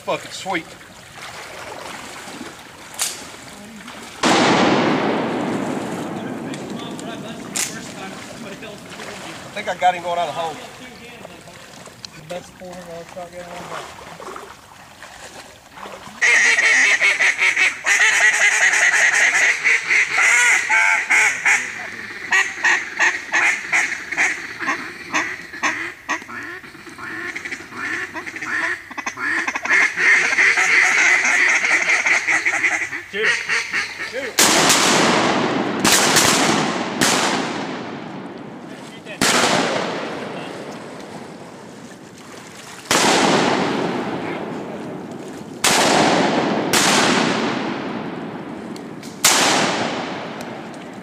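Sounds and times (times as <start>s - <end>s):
shotgun shots: 4.2s - 7.8s, 34.4s - 38.1s, 39.2s - 40.4s, 42.9s - 44.5s, 45.6s - 48.3s, 49.1s - 50.6s
duck calls quacking: 16.2s - 34.9s.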